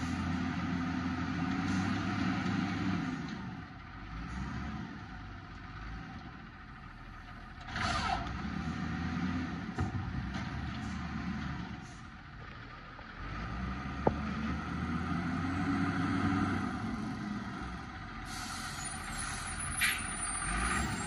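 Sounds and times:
hiss with falling squeal: 18.3s - 21.0s.

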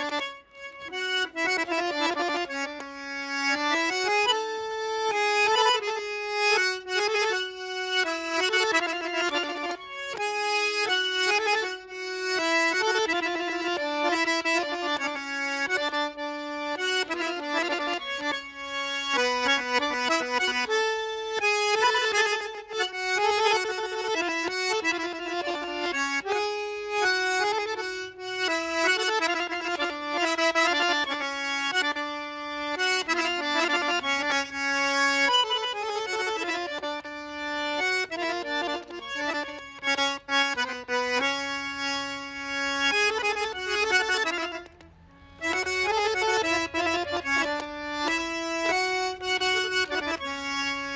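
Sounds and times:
button accordion melody: 0.0s - 50.9s.

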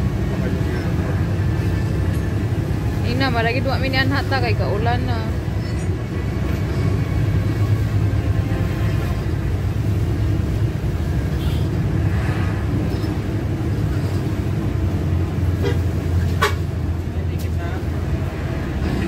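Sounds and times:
bus engine and road drone: 0.0s - 19.0s.

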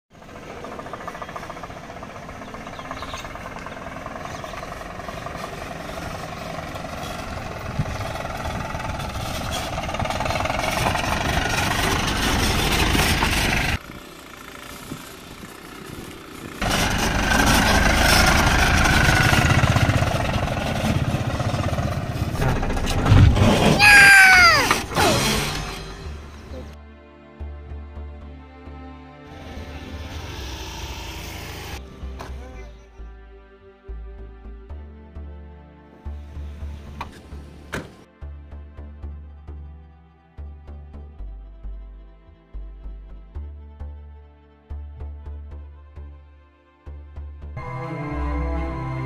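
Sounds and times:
vehicle engine running: 0.1s - 23.6s, 29.4s - 33.1s
rumbling outdoor noise: 0.1s - 26.8s.

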